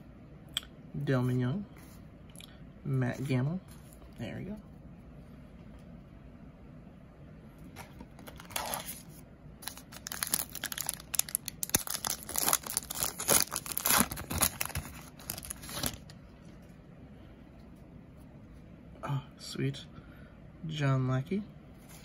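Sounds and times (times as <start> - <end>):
wrapper tearing and crinkling: 8.2 - 9.0, 9.6 - 16.1.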